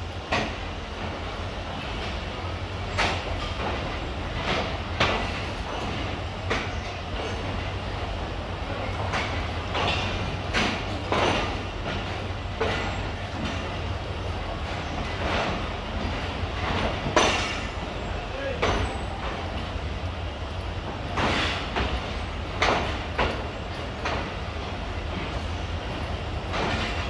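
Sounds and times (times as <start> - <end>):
train rumble: 0.0 - 27.0
train wheels clicking over rail joints: 0.0 - 27.0.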